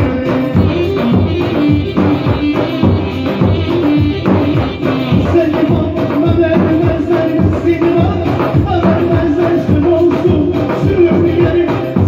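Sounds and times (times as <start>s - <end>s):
electronic keyboard melody: 0.0s - 12.0s
steady drum beat: 0.0s - 12.0s.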